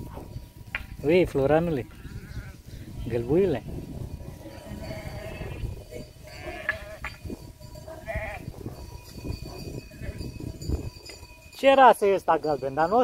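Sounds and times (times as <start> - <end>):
sheep bleating: 1.9 - 2.6, 4.5 - 7.0, 8.0 - 8.5.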